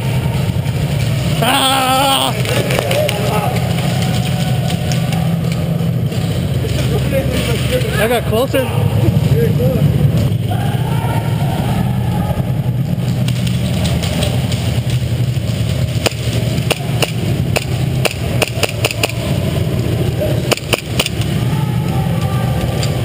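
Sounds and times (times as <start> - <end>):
low hum: 0.0 - 23.0
airsoft gun shots: 16.0 - 19.3, 20.5 - 21.2.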